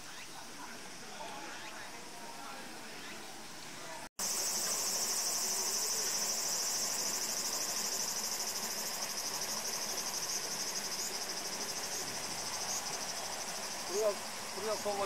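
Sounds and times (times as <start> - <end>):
high-pitched insect chorus: 4.2 - 15.0.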